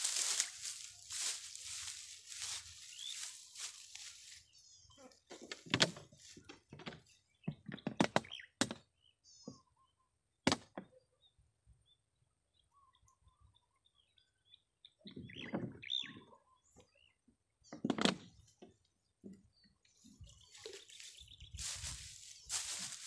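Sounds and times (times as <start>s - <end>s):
dry grass rustling and crunching: 0.0s - 4.8s, 20.2s - 23.0s
birds chirping: 0.0s - 10.2s, 11.0s - 23.0s.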